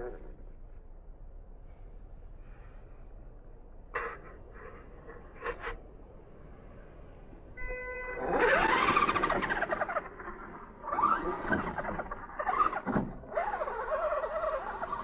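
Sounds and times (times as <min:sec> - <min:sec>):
toy truck motor revving: 0:08.2 - 0:15.0.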